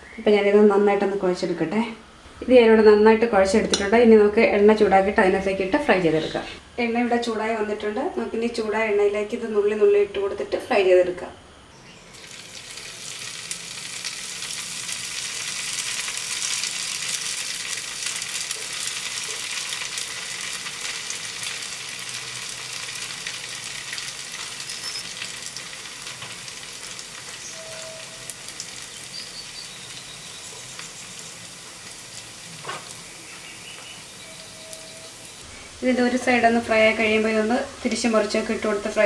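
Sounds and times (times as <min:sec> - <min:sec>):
batter deep-frying in oil: 0:11.8 - 0:39.0.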